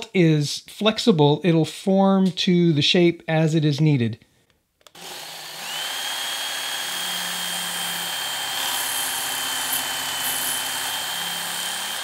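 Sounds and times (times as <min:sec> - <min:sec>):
belt sharpener whining: 0:04.9 - 0:12.0.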